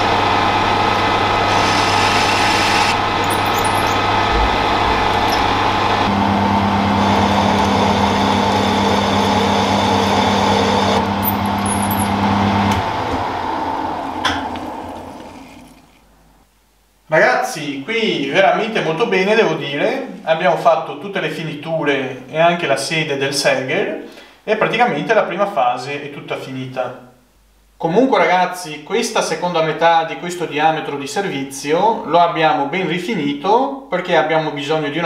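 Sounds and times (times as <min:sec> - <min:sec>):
metal lathe running: 0:00.0 - 0:15.6
lathe spindle spinning down: 0:00.0 - 0:15.8.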